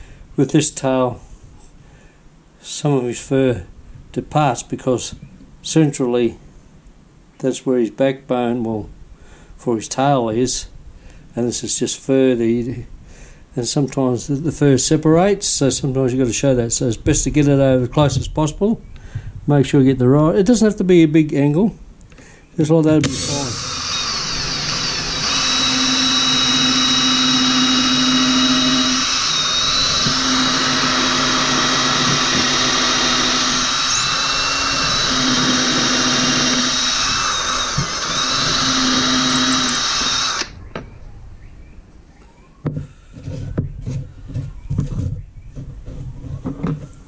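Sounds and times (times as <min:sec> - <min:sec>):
cordless drill boring into wood: 0:23.0 - 0:40.6
wood handled on a bench: 0:42.6 - 0:47.0.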